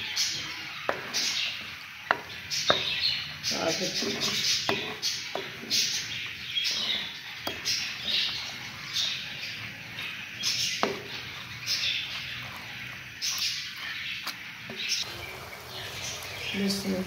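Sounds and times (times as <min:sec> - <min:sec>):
wooden spoon scraping frying food: 0:00.0 - 0:17.0
spoon knocking on pot: 0:02.0 - 0:03.0, 0:04.1 - 0:05.9, 0:07.4 - 0:07.9.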